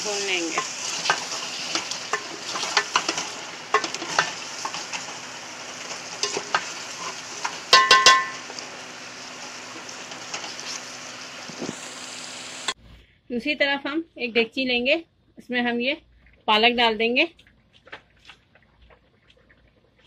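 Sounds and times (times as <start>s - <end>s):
food sizzling in a pot: 0.0s - 12.8s
wooden spoon stirring and scraping: 0.1s - 7.6s
ringing metallic knocks: 7.7s - 8.4s.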